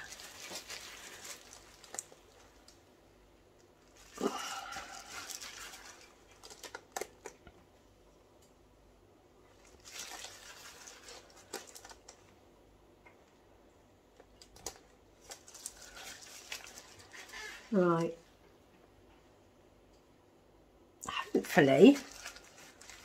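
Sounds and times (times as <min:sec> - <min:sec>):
paper tissue rustling: 0:00.0 - 0:02.8, 0:03.8 - 0:07.3, 0:09.5 - 0:12.3, 0:14.5 - 0:18.2, 0:21.5 - 0:23.0
nitrile gloves crinkling: 0:00.0 - 0:07.5, 0:09.4 - 0:12.5, 0:14.2 - 0:18.4, 0:21.4 - 0:23.0.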